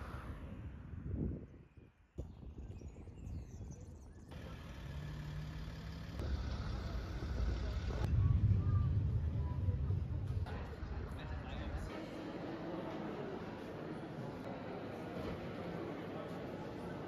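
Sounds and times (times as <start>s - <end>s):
road vehicles rumbling: 4.3s - 11.9s.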